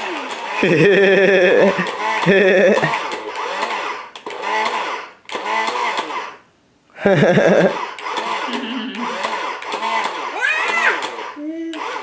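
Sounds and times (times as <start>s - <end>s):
child babbling and squealing: 10.3s - 12.0s.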